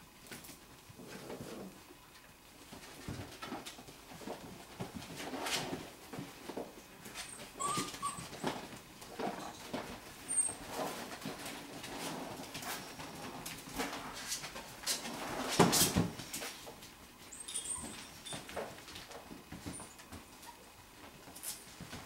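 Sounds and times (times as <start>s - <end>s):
paws scuffling on plastic toys: 0.2s - 22.0s
puppy whimpers: 7.2s - 8.8s, 17.3s - 18.4s.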